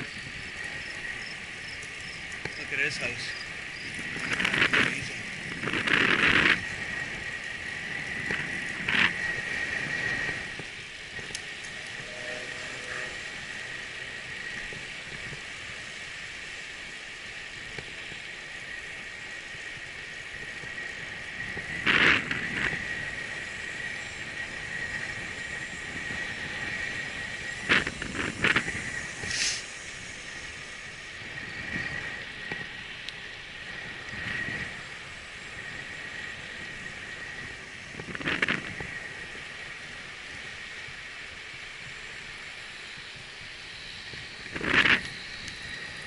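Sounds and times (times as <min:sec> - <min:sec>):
high-pitched insect drone: 0:00.0 - 0:40.8, 0:41.8 - 0:46.0
bicycle rattles: 0:00.0 - 0:46.0
bicycle tyre and air noise: 0:00.0 - 0:46.0.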